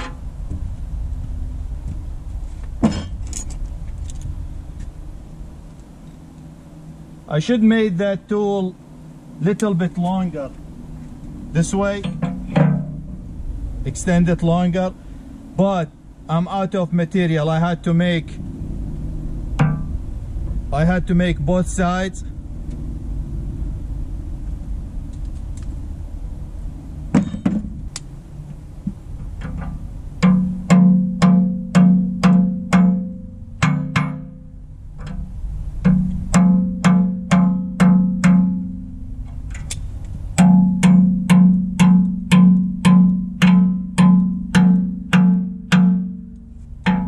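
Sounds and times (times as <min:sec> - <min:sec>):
low steady rumble: 0:00.0 - 0:47.0
hammer striking steel: 0:02.8 - 0:03.2, 0:11.9 - 0:13.2, 0:19.6 - 0:20.0, 0:27.2 - 0:27.7, 0:30.2 - 0:35.2, 0:35.8 - 0:38.9, 0:40.4 - 0:47.0.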